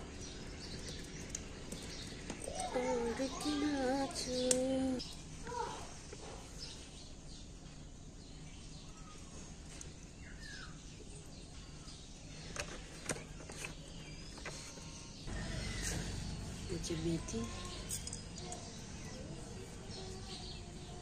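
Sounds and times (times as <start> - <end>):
sharp clicks: 4.4 - 5.2.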